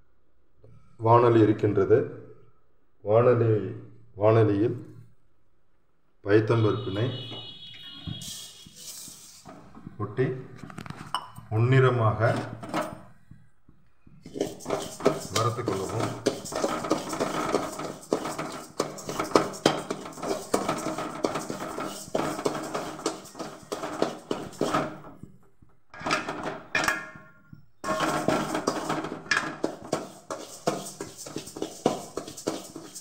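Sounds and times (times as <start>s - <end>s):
metal ladle scraping a pan: 7.0s - 9.9s, 14.2s - 25.3s, 26.0s - 33.0s
dry lentils rattling in a pan: 14.3s - 25.0s, 27.8s - 33.0s.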